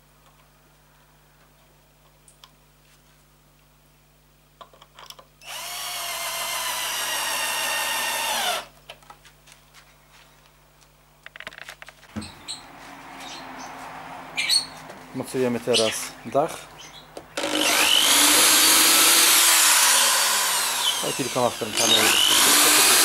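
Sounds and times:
cordless drill driving screw: 5.4s - 8.7s, 17.4s - 23.0s.

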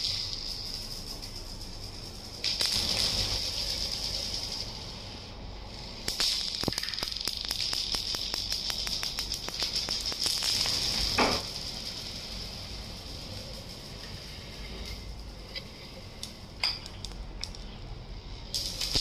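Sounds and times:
glass marbles rolling on floor: 0.0s - 5.2s, 5.8s - 17.8s
marbles clicking together: 2.2s - 5.1s, 5.8s - 14.6s.

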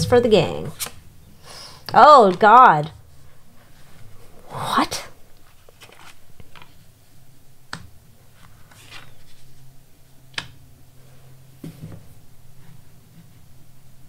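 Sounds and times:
cards sliding and shuffling: 0.6s - 1.0s, 5.4s - 6.8s, 8.3s - 9.6s.

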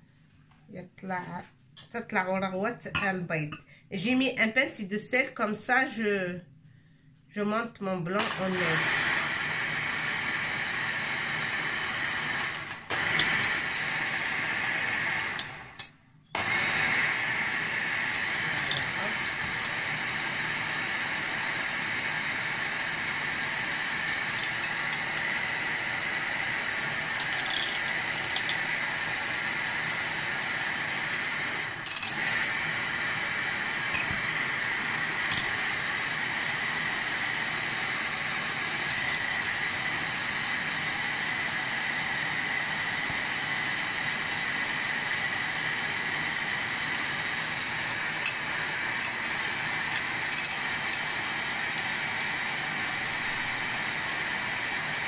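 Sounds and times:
electric hand mixer whipping: 8.2s - 55.0s.

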